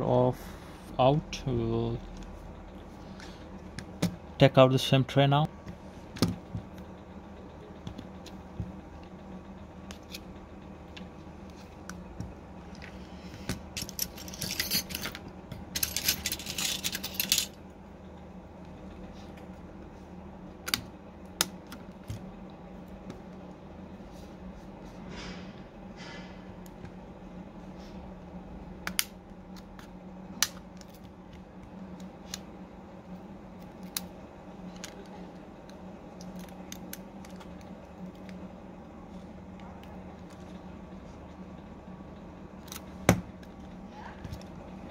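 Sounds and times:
low steady hum: 0:00.0 - 0:44.9
small metal parts clattering: 0:13.8 - 0:17.6.

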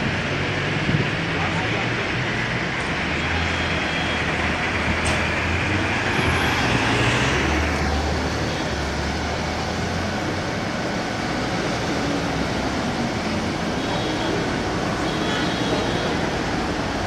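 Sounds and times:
road traffic passing: 0:00.0 - 0:17.0.

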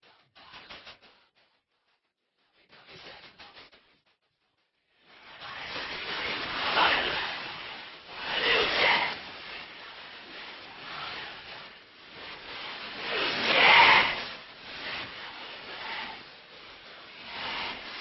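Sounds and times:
rushing wind: 0:05.2 - 0:18.0.

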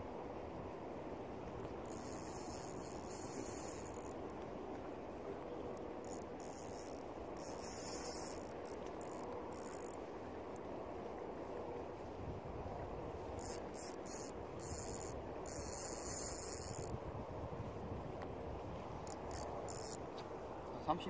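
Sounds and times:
low background rush: 0:00.0 - 0:21.0
fishing reel drag buzzing: 0:01.6 - 0:04.7, 0:05.5 - 0:10.7, 0:13.2 - 0:17.2, 0:18.7 - 0:20.5.

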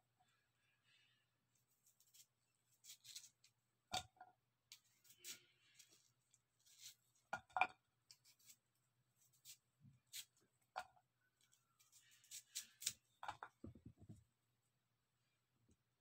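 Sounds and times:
knife scraping onion: 0:01.8 - 0:03.5, 0:04.7 - 0:07.1, 0:08.1 - 0:10.4, 0:11.4 - 0:13.1.

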